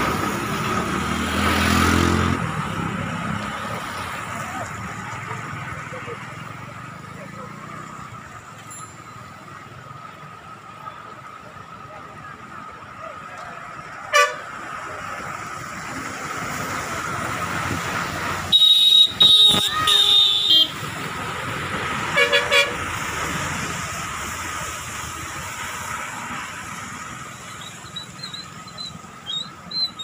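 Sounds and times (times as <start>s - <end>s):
road traffic: 0.0s - 30.0s
vehicle horns honking: 14.1s - 14.6s, 18.5s - 20.8s, 22.1s - 22.9s.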